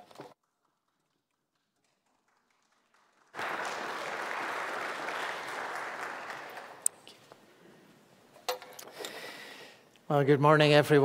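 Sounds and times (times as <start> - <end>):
congregation applauding: 0.4 - 7.1.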